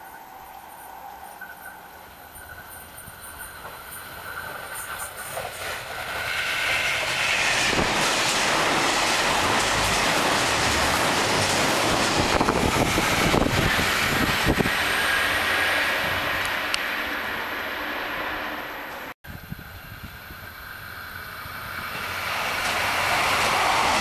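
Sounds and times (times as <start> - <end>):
train rushing past: 0.0 - 24.0.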